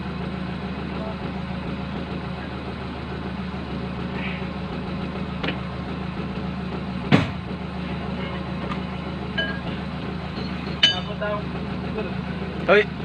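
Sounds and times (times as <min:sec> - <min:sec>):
diesel engine idling: 0:00.0 - 0:13.0
sharp metallic clank: 0:10.4 - 0:11.4.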